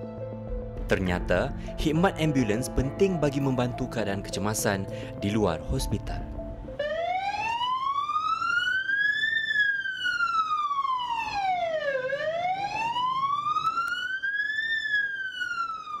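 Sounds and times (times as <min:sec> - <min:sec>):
ambulance siren wailing: 0:06.8 - 0:16.0.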